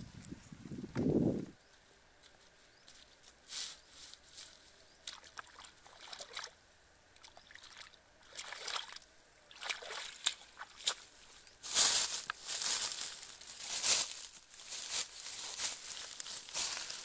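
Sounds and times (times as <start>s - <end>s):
bare feet sloshing through puddle: 5.1s - 6.6s, 7.2s - 11.2s.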